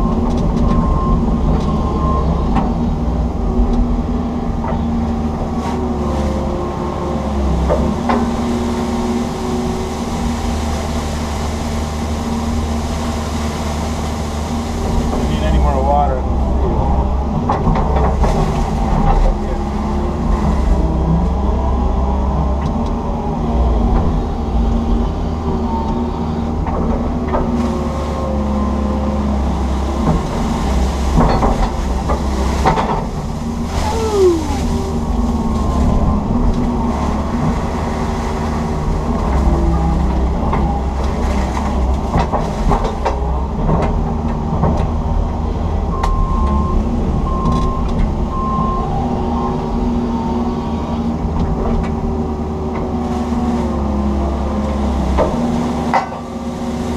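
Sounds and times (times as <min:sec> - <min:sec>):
excavator diesel engine running: 0:00.0 - 0:56.9
knocks and clanks: 0:31.1 - 0:33.2
short falling whine: 0:33.6 - 0:36.4.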